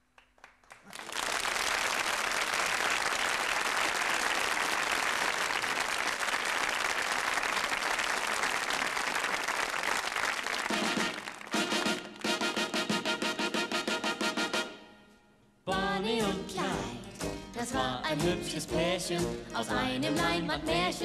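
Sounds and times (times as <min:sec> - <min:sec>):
audience applauding: 0:00.0 - 0:13.0
band playing chords: 0:10.7 - 0:15.0, 0:15.7 - 0:20.9.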